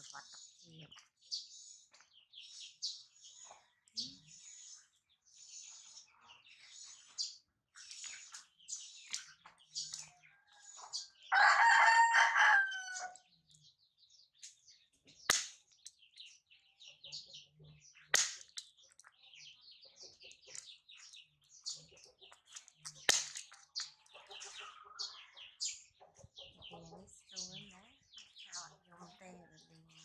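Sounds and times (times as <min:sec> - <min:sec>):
small birds chirping: 0:00.0 - 0:30.0
rooster crowing: 0:11.3 - 0:13.2.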